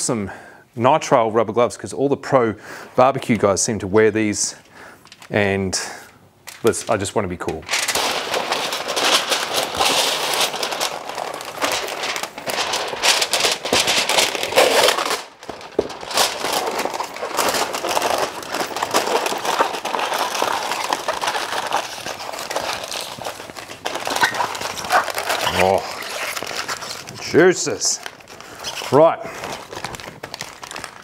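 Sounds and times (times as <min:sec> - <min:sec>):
aluminium foil crinkling: 0:07.7 - 0:31.0.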